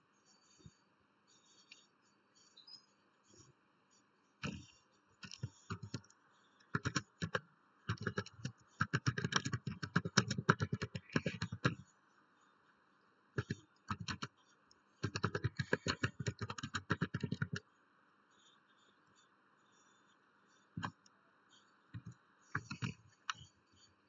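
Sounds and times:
computer keyboard typing: 5.2 - 6.1, 6.7 - 11.8, 13.4 - 14.3, 15.0 - 17.6, 21.9 - 23.5.

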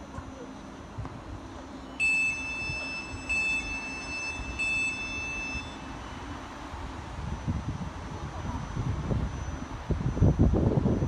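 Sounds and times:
train low hum: 0.0 - 11.0
electronic beeps: 1.9 - 6.4.

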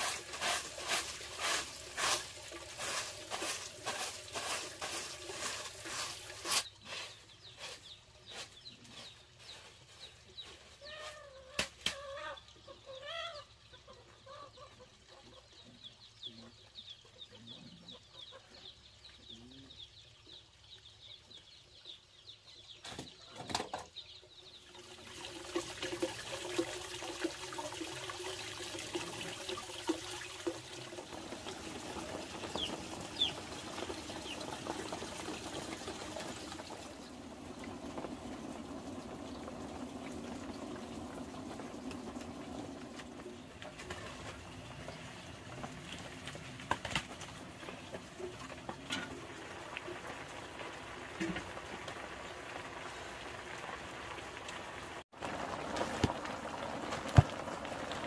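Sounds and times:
broom sweeping dirt: 0.0 - 11.5
chickens clucking: 10.5 - 19.7, 31.1 - 44.3.

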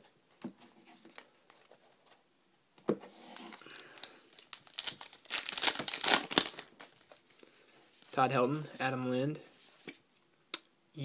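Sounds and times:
wrapper crinkling and tearing: 3.5 - 7.4.

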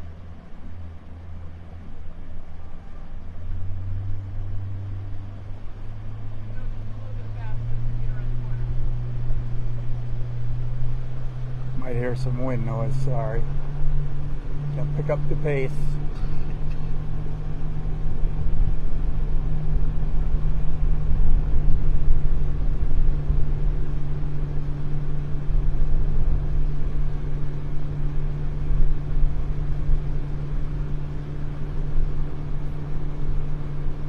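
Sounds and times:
boat motor humming: 0.0 - 34.0
wind buffeting microphone: 7.7 - 34.0.

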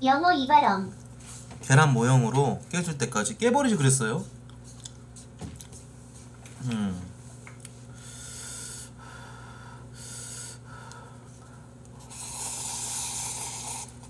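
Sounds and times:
noodles being slurped: 12.0 - 14.0.

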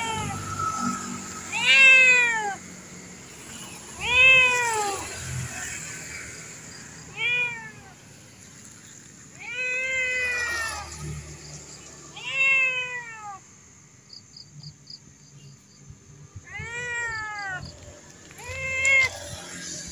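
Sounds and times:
cat meowing: 0.0 - 0.4, 1.5 - 2.6, 4.0 - 5.6, 7.1 - 8.0, 9.3 - 11.0, 12.1 - 13.4, 16.4 - 19.8.

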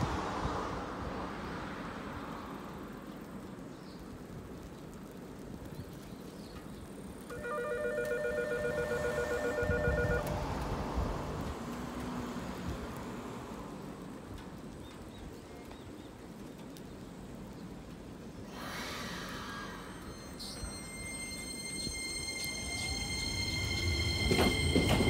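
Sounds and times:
electronic bell trilling: 7.3 - 10.2, 20.1 - 24.4.

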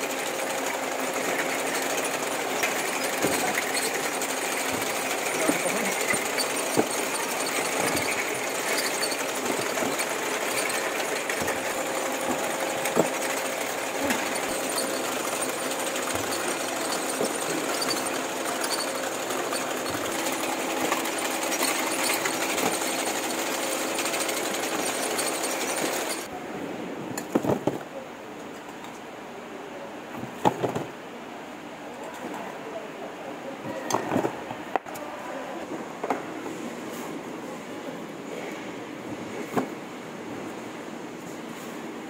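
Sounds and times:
conveyor machinery rattle and hum: 0.0 - 26.3.

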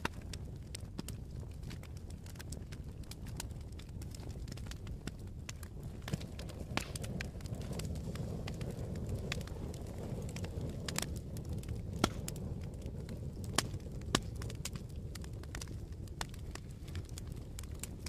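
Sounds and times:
fire popping: 0.0 - 18.0
wood fire crackling: 0.0 - 18.0.

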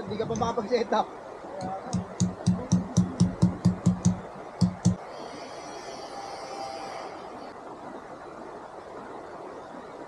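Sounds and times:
steady rushing hiss: 0.0 - 10.0
sharp knocks: 1.6 - 5.0.

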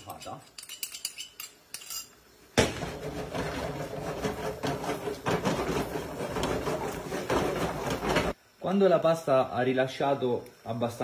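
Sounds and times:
pan knocking and scraping: 2.6 - 8.4.

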